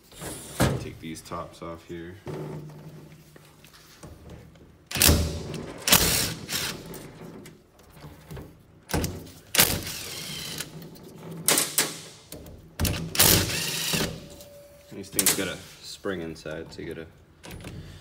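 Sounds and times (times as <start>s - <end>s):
cordless driver whirring: 13.2s - 14.0s.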